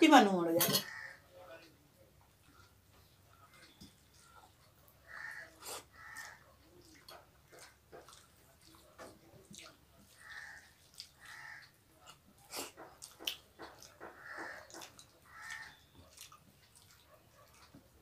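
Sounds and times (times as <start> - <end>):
wet mouth eating sounds: 5.5 - 18.0.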